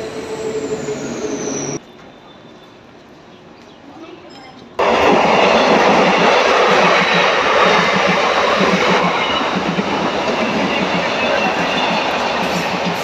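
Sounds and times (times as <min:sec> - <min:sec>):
train rumbling past: 0:00.0 - 0:02.2, 0:04.8 - 0:13.0
train wheels clattering: 0:04.8 - 0:13.0.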